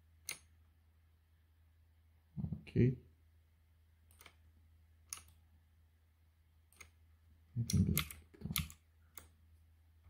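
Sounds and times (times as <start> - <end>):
computer keyboard keys clicking: 7.7 - 9.3.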